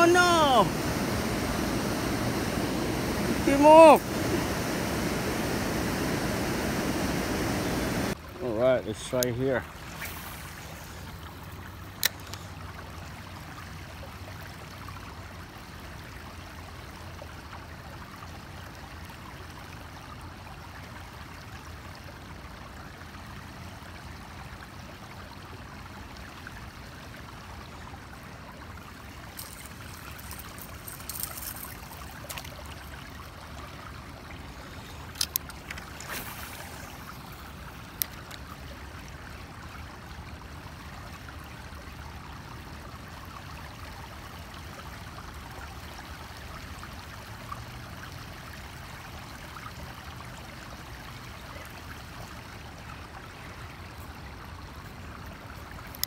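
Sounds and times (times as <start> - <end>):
river water rushing: 0.0 - 12.6, 28.9 - 39.6.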